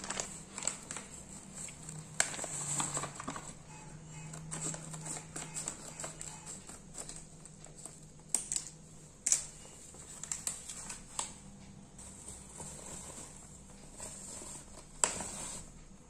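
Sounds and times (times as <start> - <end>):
plastic foil crinkling: 0.0 - 15.7
scissors snipping plastic packet: 4.4 - 9.5.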